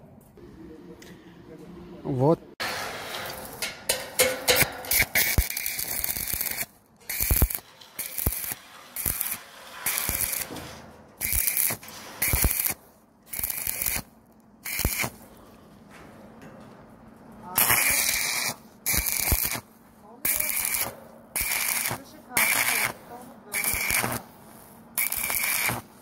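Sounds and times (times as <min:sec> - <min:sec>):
welding arc crackling and hissing: 0:02.6 - 0:10.6, 0:11.2 - 0:15.2, 0:17.5 - 0:26.0.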